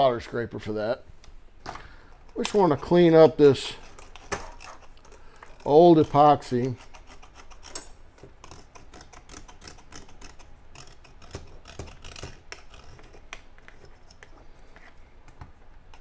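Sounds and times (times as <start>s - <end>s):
scraper scratching plastic: 2.4s - 7.8s, 8.4s - 14.2s.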